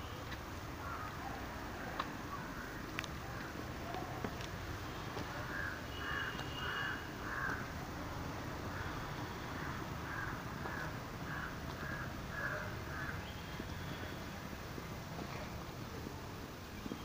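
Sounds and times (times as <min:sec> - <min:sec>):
crow cawing: 0:00.8 - 0:01.2, 0:02.3 - 0:02.8, 0:05.4 - 0:07.7, 0:08.7 - 0:13.2.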